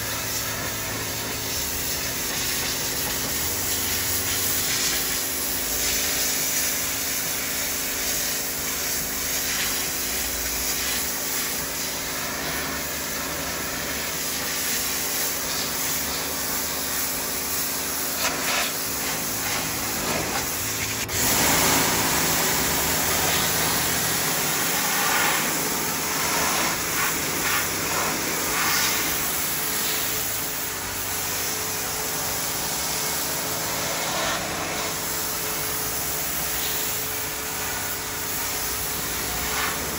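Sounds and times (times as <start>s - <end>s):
pressure washer spray hissing: 0.0s - 39.9s
steady machine hum: 11.9s - 39.9s.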